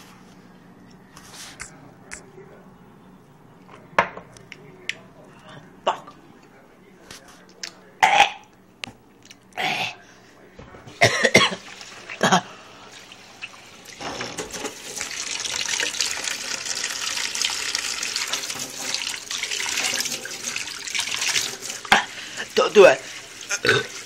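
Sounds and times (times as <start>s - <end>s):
faucet running into metal sink: 11.5s - 24.0s.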